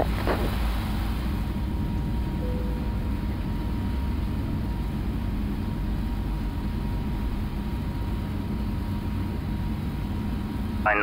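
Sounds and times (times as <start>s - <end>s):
jet airliner engines and airflow: 0.0s - 11.0s
faint high tone: 2.4s - 3.2s
brief faint tone: 2.4s - 3.3s.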